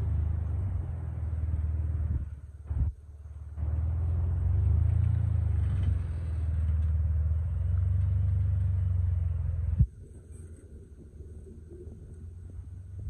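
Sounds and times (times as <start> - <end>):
engine running at low revs: 0.0 - 13.0.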